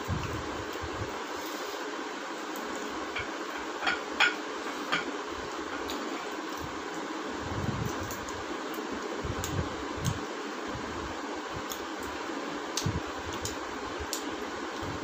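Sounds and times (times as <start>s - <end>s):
fan-like hiss: 0.0s - 15.0s
eating clicks and smacks: 7.9s - 10.2s, 11.6s - 14.9s.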